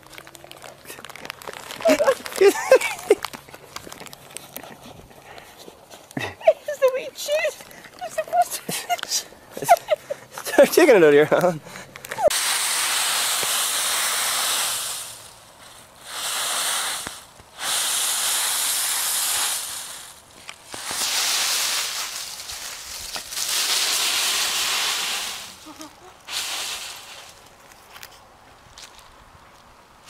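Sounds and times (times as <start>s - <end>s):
dry leaves rustling and crackling: 0.0s - 5.1s, 12.2s - 29.2s.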